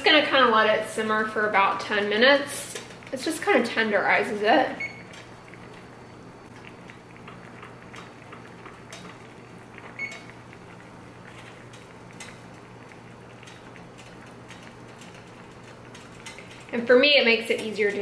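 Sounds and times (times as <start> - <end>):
low steady hum: 0.0 - 18.0
water simmering with small pops: 0.0 - 18.0.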